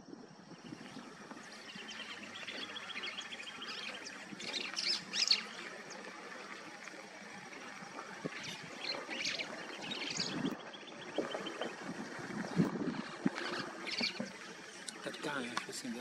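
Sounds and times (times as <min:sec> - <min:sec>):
small birds chirping: 0:00.4 - 0:16.0
bird trill: 0:01.4 - 0:06.1, 0:08.3 - 0:11.7.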